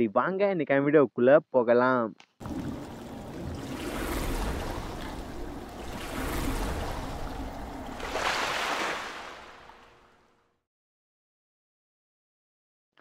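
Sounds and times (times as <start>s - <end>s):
splashing rushing water: 2.4s - 10.2s.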